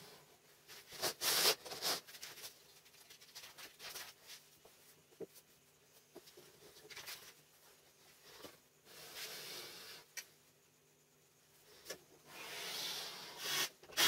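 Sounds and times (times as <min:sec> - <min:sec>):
paper sheets rustling: 0:00.7 - 0:04.7, 0:06.8 - 0:07.4.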